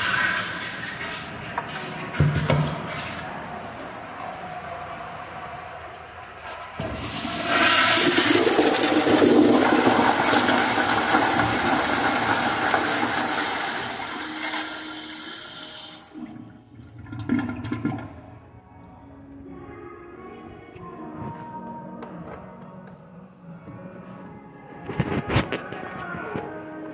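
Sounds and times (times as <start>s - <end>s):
toilet flushing water rush: 0.0s - 18.6s.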